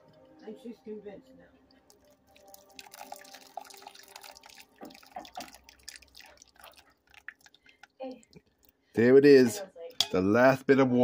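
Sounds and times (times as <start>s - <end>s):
water trickling onto coffee grounds: 1.7s - 9.1s.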